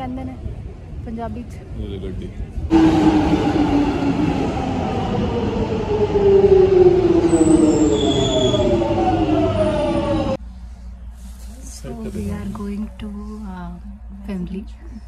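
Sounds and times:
train rumble: 0:00.0 - 0:15.0
high squeal: 0:07.1 - 0:10.2.

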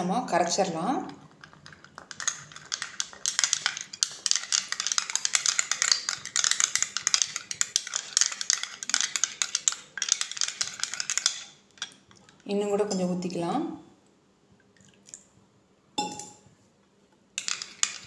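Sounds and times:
spoon stirring in glass bowl: 0:01.1 - 0:13.1, 0:17.4 - 0:18.0.

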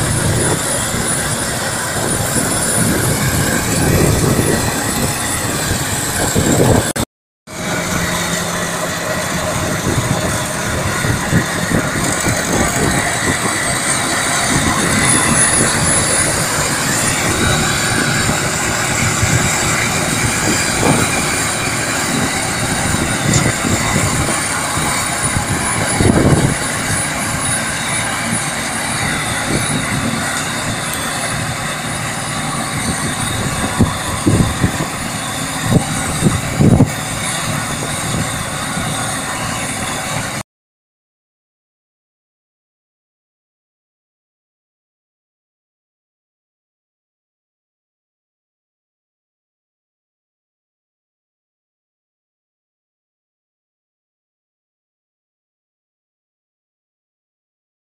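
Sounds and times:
combine harvester running: 0:00.0 - 0:40.4
thin high whine: 0:00.0 - 0:40.4.

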